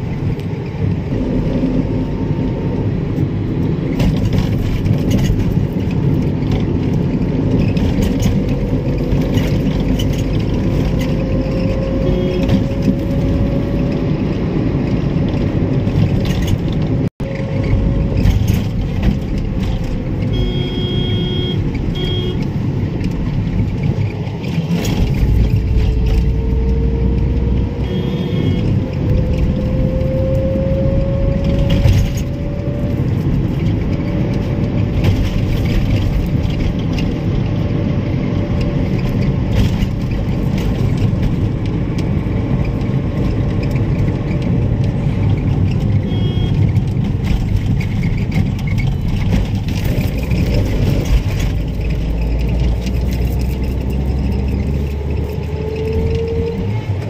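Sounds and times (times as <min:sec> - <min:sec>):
car engine and tyre noise: 0:00.0 - 0:57.0
short high beeps: 0:20.3 - 0:22.4, 0:27.8 - 0:28.7, 0:46.1 - 0:46.6.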